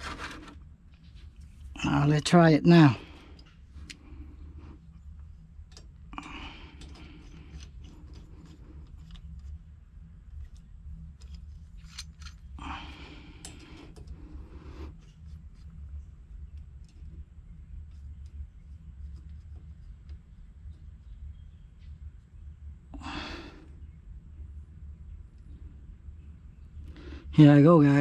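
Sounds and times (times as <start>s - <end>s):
scraping and rustling: 0.0s - 1.7s
low steady hum: 0.0s - 28.0s.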